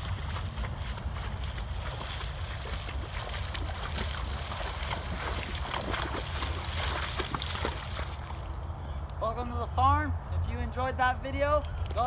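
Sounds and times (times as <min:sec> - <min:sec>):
horse splashing through water: 0:00.0 - 0:08.5.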